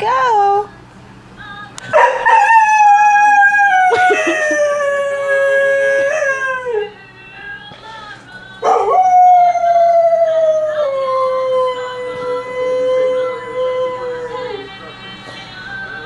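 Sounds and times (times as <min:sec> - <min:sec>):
music from television: 0:00.7 - 0:04.2, 0:05.0 - 0:16.0
dog howling: 0:01.9 - 0:07.0, 0:08.6 - 0:14.9.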